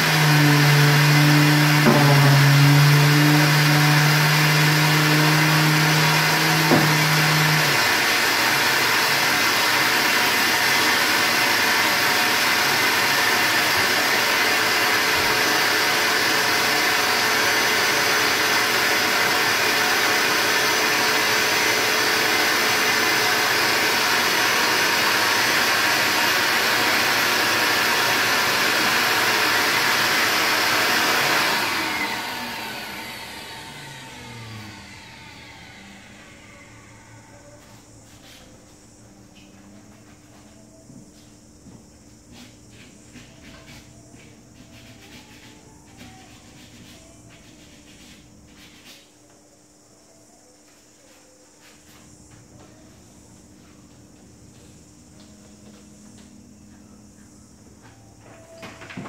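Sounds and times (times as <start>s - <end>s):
electric sander humming: 0.0s - 37.4s
dust extraction vacuum running: 0.0s - 47.0s.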